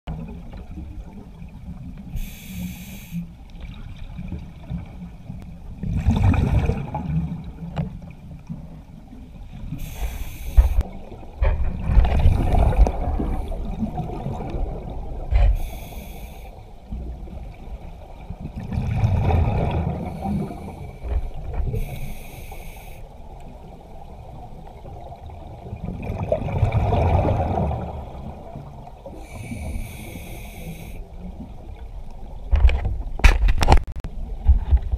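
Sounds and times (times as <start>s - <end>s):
muffled underwater rumble: 0.1s - 34.9s
short high hisses: 9.8s - 10.8s, 15.6s - 16.6s.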